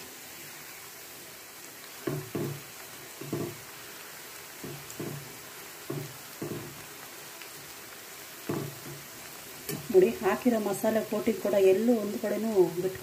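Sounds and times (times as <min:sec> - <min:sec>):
hot oil sizzling: 0:00.0 - 0:13.0
spoon knocking in pan: 0:02.0 - 0:03.8, 0:04.6 - 0:07.0, 0:08.4 - 0:10.0.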